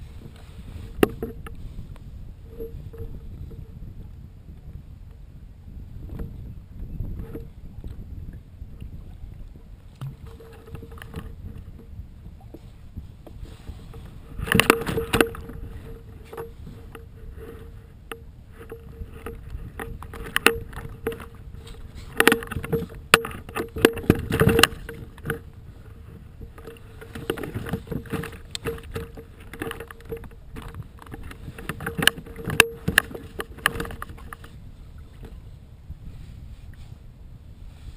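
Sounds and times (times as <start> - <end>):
faint steady tone: 0.0 - 37.9
paddle water splashing: 7.2 - 37.0.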